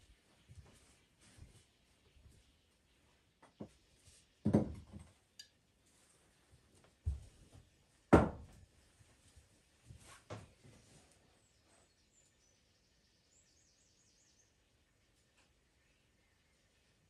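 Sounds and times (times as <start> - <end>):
kitchen items knocking on counter: 4.4 - 5.1, 8.1 - 8.5.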